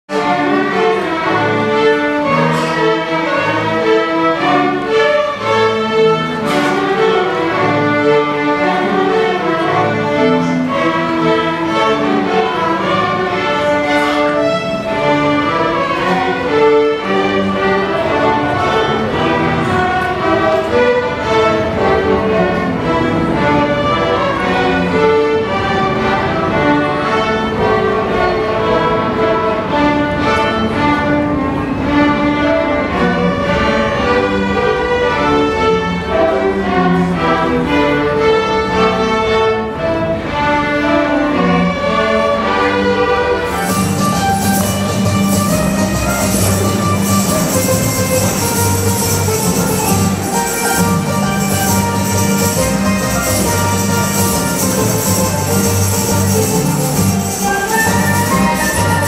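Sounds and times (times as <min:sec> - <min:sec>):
string ensemble playing: 0:00.0 - 0:59.0.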